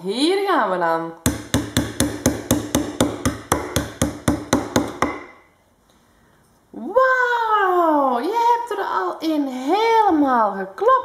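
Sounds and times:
wooden toy hammer knocking pegs: 1.3s - 5.4s.

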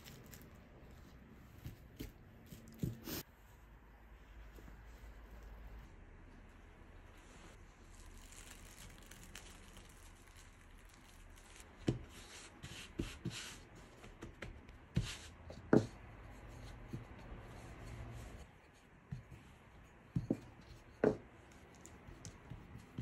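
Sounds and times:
cloth and plastic wrap rustling: 0.0s - 6.0s, 7.0s - 11.7s.

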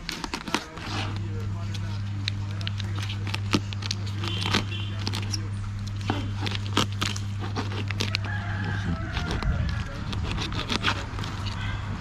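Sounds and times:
steady low hum: 0.0s - 12.0s
knife cracking lobster shells: 2.3s - 11.6s.

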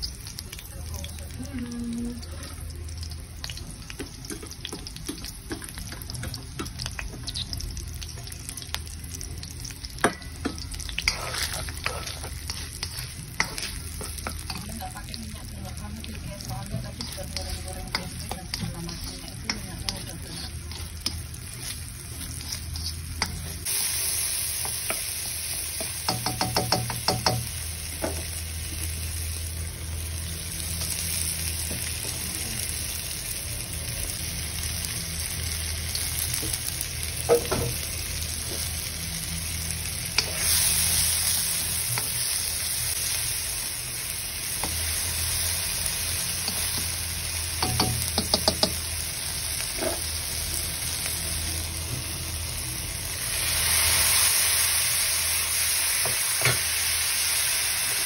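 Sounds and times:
food sizzling in hot oil: 0.0s - 58.0s
spatula tapping and scraping wok: 3.9s - 7.5s, 10.0s - 15.0s, 16.4s - 23.7s, 24.6s - 28.3s, 46.4s - 48.9s.

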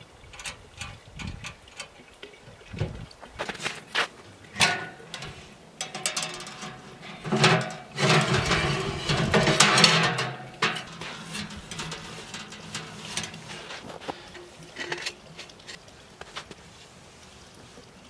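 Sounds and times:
metal knocks and clicks: 4.5s - 13.6s
metal scraping and rattling: 4.5s - 15.8s.

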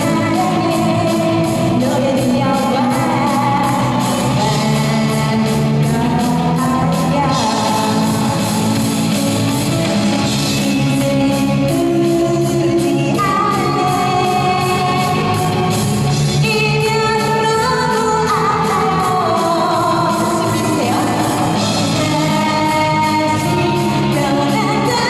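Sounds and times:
woman singing into microphone: 0.0s - 8.8s, 10.4s - 25.0s
pop-rock band through loudspeakers: 0.0s - 25.0s.

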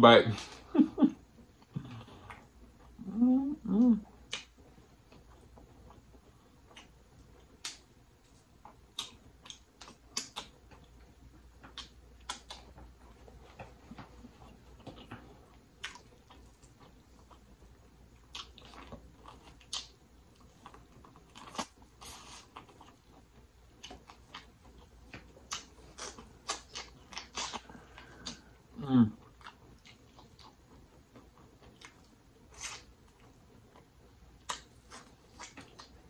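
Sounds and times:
close chewing and mouth smacks: 1.3s - 3.0s, 4.0s - 36.0s.

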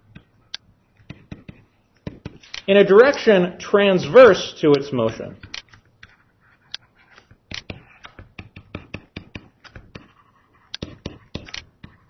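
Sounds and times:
stylus tapping on tablet screen: 1.0s - 2.4s, 6.0s - 12.0s.

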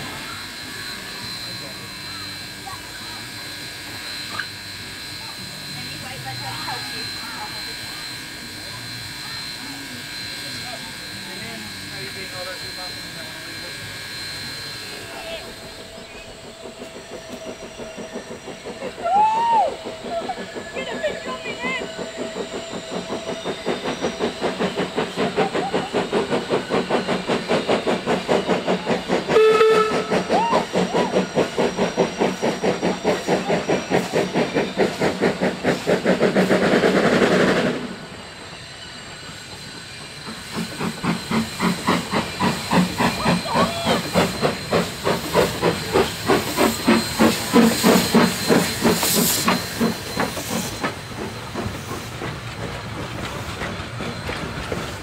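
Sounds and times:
steam hissing: 0.0s - 55.0s
steam locomotive chuffing: 0.0s - 55.0s
steam whistle blast: 29.2s - 31.2s.

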